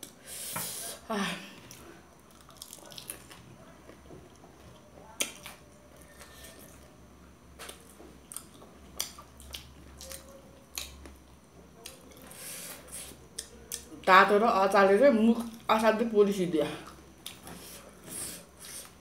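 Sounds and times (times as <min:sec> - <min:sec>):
people chewing food: 0:01.5 - 0:14.1, 0:16.8 - 0:19.0.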